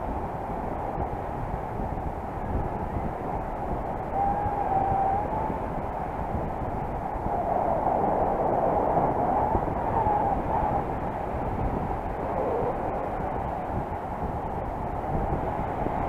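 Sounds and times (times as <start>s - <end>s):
wind rushing over microphone: 0.0s - 16.0s
wavering whistle: 4.1s - 5.6s.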